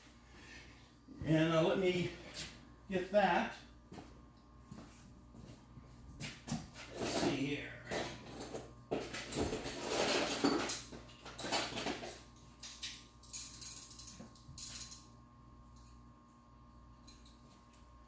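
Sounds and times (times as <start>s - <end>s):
metal tools clinking: 8.2s - 15.1s.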